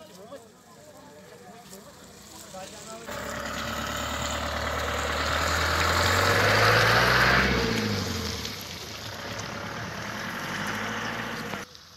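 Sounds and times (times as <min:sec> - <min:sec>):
vehicle driving past: 0:03.0 - 0:11.6.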